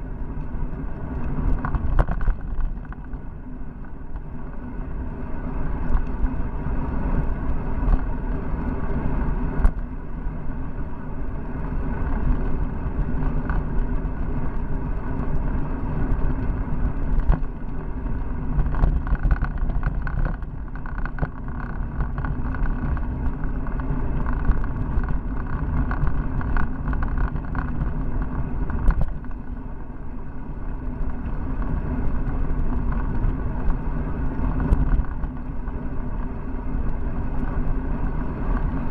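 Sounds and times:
bicycle road rumble: 0.0 - 38.9
wind noise: 0.0 - 38.9.

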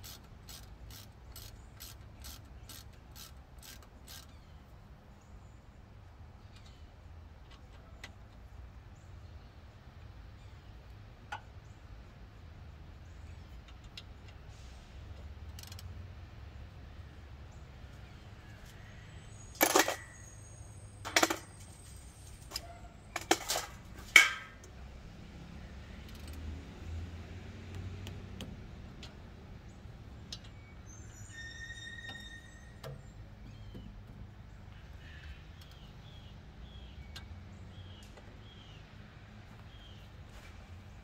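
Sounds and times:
metal clanks of wrench and brake parts: 19.5 - 24.7.

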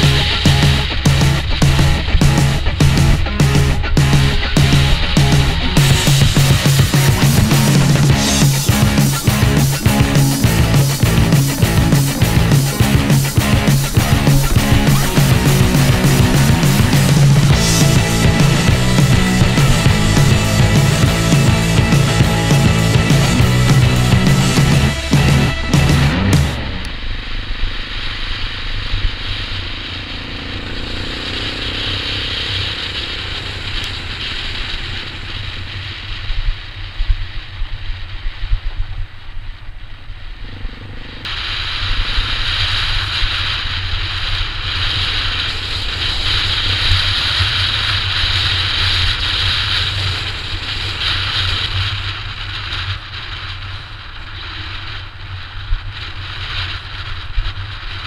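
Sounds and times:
dirt bike engine running: 0.0 - 58.0
wind noise on microphone: 41.2 - 58.0.

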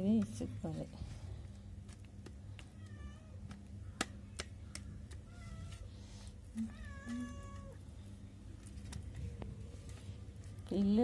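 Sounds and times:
cat meowing: 6.6 - 7.8.

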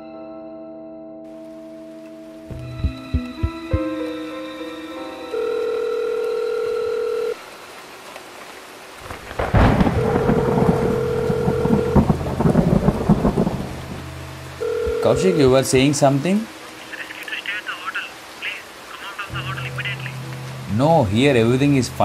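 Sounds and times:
rain: 1.3 - 22.0
thunderclap rumbling and crackling: 9.0 - 14.1.

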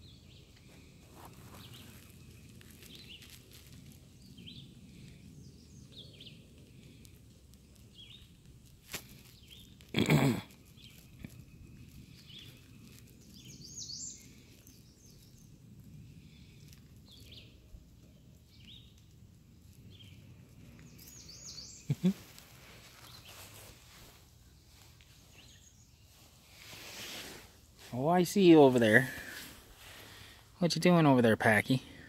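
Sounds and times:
faint bird chirps: 10.6 - 27.2.

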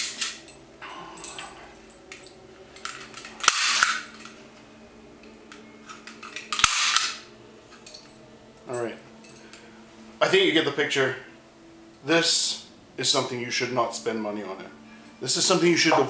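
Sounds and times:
staple gun firing: 3.4 - 4.0, 6.5 - 7.2.

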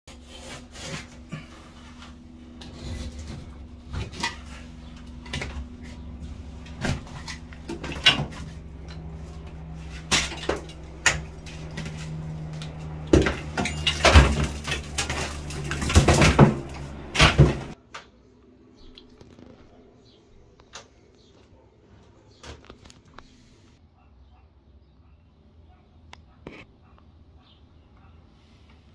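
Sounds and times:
utility knife cutting drywall: 0.1 - 4.7
drywall tearing and crumbling: 0.1 - 17.8
steady low hum: 0.1 - 22.3.

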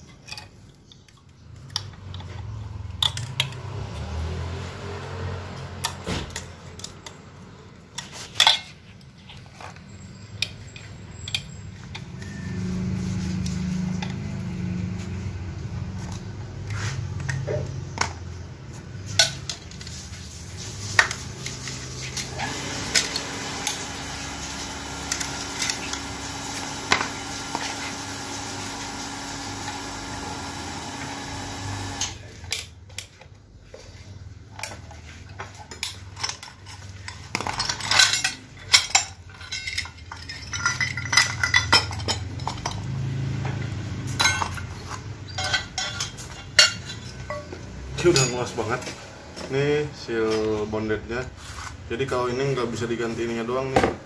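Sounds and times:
metal parts clinking and knocking: 0.0 - 3.7, 5.8 - 12.6, 34.6 - 48.5.

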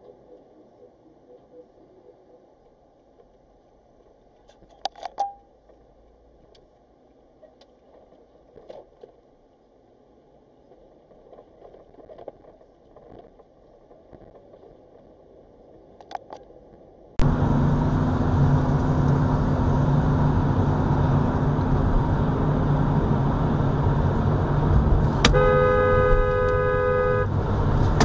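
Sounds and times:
car road and engine noise: 17.2 - 28.0
car horn honking: 25.1 - 27.4.

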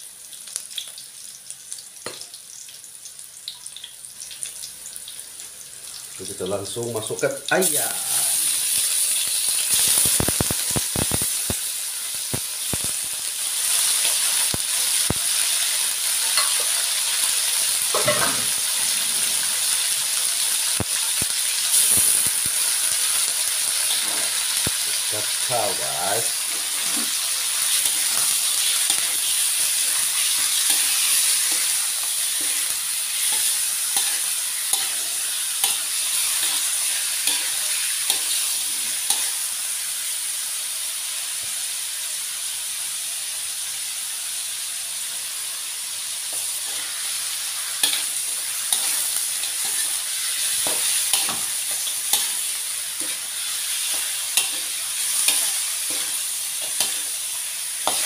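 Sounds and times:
chicken sizzling in hot oil: 0.0 - 58.0
metal spatula scraping wok: 17.9 - 19.9, 23.9 - 24.4, 26.4 - 39.4, 46.5 - 58.0.

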